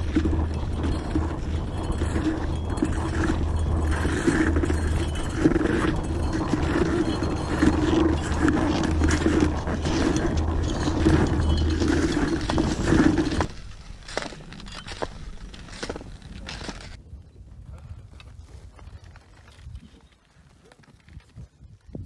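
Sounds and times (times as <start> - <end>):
skis scraping on icy snow: 0.0 - 17.0.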